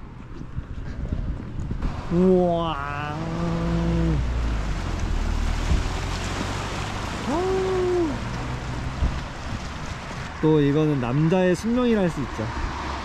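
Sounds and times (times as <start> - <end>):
wind rumbling on microphone: 0.0 - 13.0
person exclaiming wow: 2.1 - 4.2, 7.2 - 8.2.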